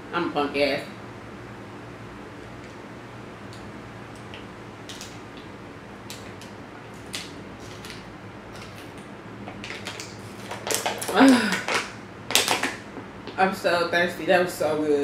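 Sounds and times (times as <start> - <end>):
plastic bottle crinkling: 6.1 - 12.8.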